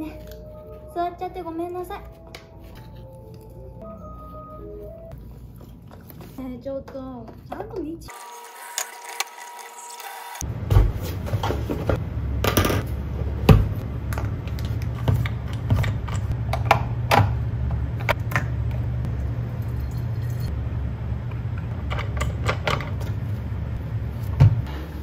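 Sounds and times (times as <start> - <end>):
steady low hum: 10.4 - 25.0.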